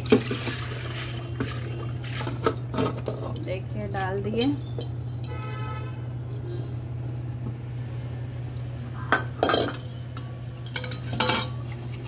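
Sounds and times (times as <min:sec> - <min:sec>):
steel bowl clanking on pot: 0:09.2 - 0:09.9, 0:10.6 - 0:11.6.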